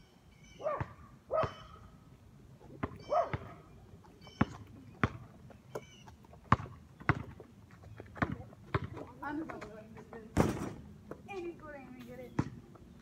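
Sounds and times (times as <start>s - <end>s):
dog barking: 0.6s - 1.8s, 3.1s - 3.6s
basketball bouncing on pavement: 0.7s - 1.8s, 2.6s - 13.0s.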